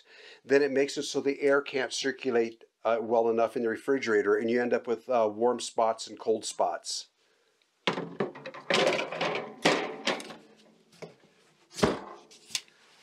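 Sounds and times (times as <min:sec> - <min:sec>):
wire baskets clattering: 0:08.1 - 0:10.5.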